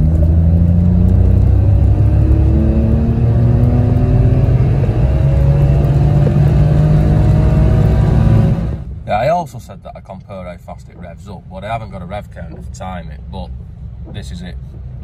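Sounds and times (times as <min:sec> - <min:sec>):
car engine revving under full throttle: 0:00.0 - 0:08.9.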